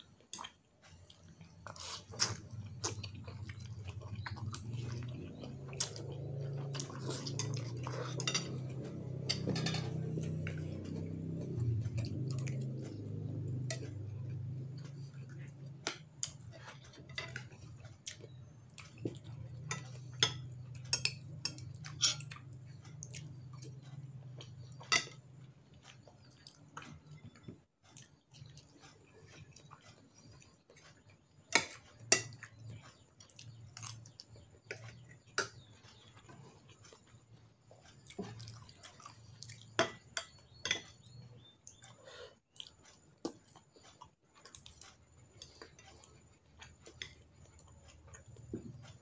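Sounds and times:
low steady hum: 0.0 - 43.8
quiet chewing: 0.0 - 49.0
cutlery clinking on plate: 7.3 - 11.0.

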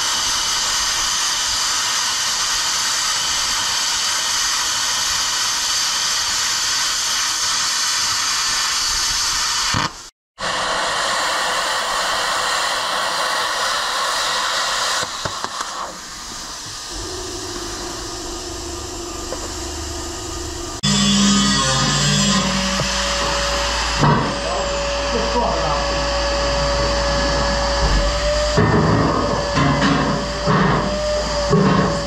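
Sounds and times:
plasma cutter hissing: 0.0 - 32.0
low steady hum: 16.9 - 21.2.

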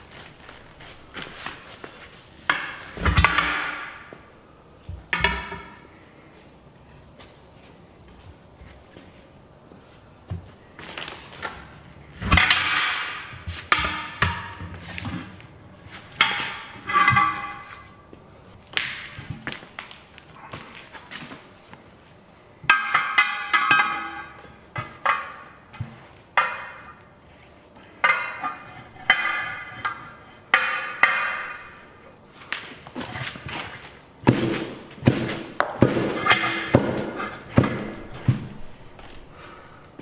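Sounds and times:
heavy tire thudding: 34.2 - 39.1.

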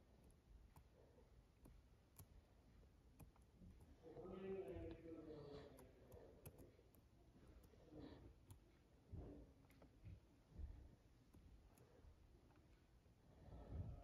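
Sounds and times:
computer mouse clicks: 3.1 - 4.0, 5.7 - 7.8.

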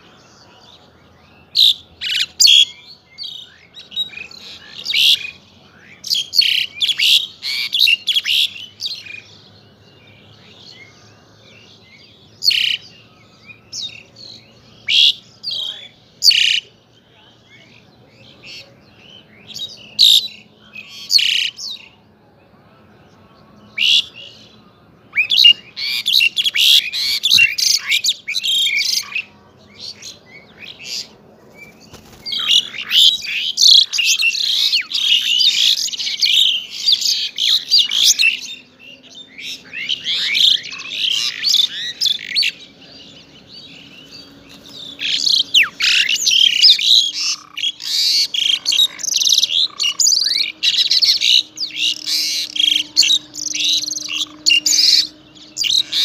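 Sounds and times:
bird whistling and chattering: 25.1 - 29.2, 31.9 - 38.4, 44.9 - 56.0.

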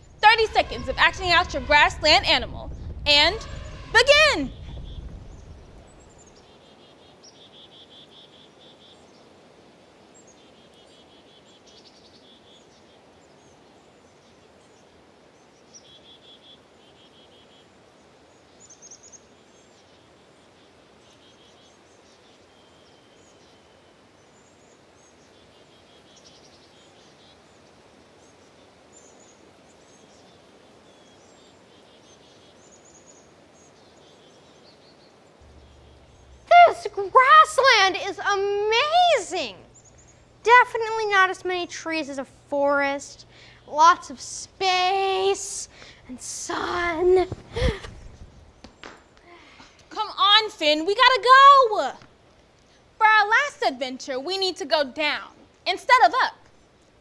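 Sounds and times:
high chirping calls: 0.0 - 8.9, 35.4 - 41.5
steady hiss: 0.0 - 54.6.

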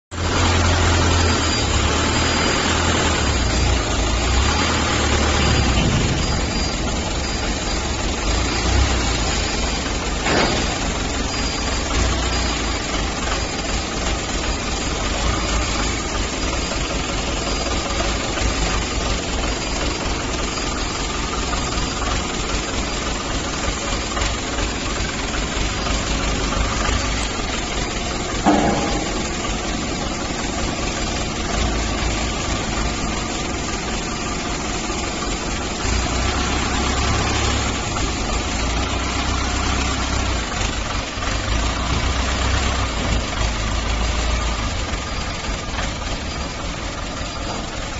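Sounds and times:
forklift engine running: 0.1 - 47.9
sharp knock: 28.4 - 29.8.

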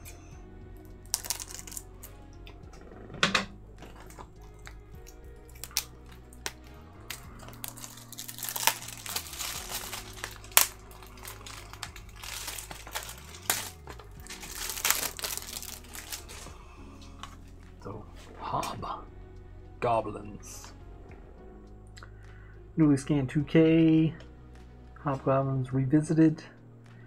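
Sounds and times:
faint background music: 0.0 - 27.0
shrink wrap crinkling and tearing: 1.1 - 1.9, 5.5 - 17.4.

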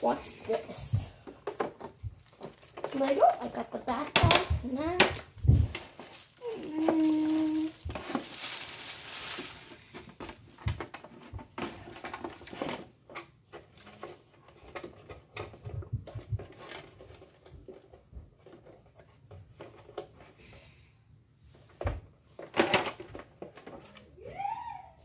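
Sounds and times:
paper scraps pouring onto wooden floor: 2.1 - 3.6, 5.5 - 10.2.

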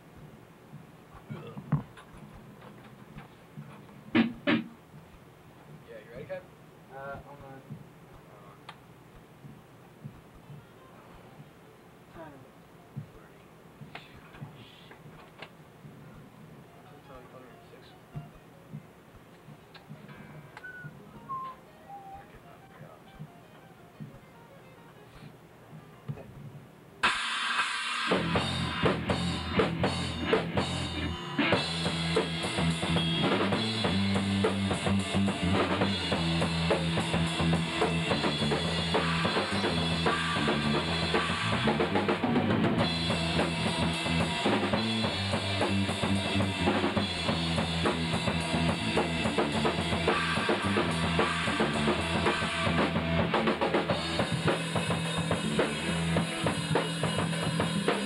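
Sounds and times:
drum kit beat: 3.6 - 6.4, 27.0 - 58.0
rock band playing: 27.0 - 58.0.

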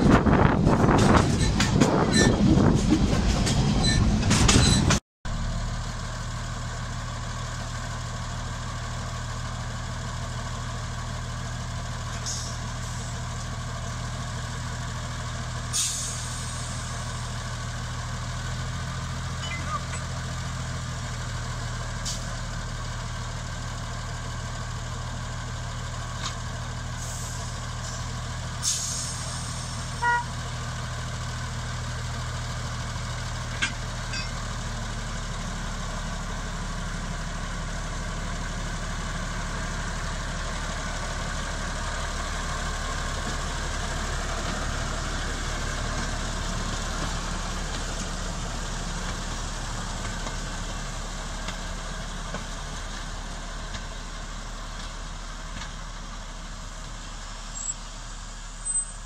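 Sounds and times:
diesel locomotive engine running: 0.0 - 59.0
brief pitched blip: 19.4 - 20.1.

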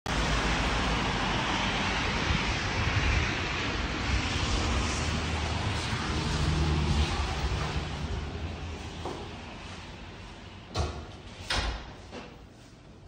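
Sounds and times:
rain on pavement: 0.1 - 8.8
wind rumbling on microphone: 0.1 - 11.9.

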